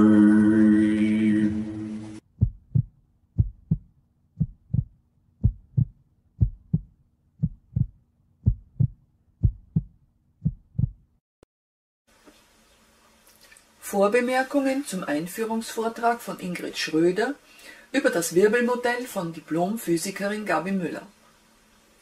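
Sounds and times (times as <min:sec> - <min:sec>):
chanting music: 0:00.0 - 0:02.2
heartbeat thumps: 0:02.3 - 0:11.1.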